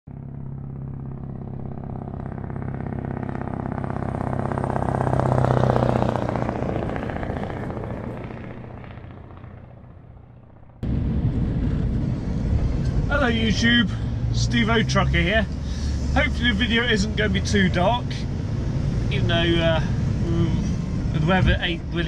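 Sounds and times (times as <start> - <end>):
heavy vehicle passing: 0.1 - 22.0
engine noise inside lorry cab: 9.7 - 22.0.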